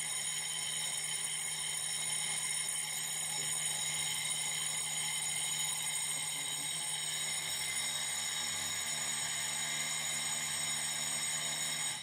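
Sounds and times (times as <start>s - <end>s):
fire alarm bell ringing: 0.0s - 8.1s.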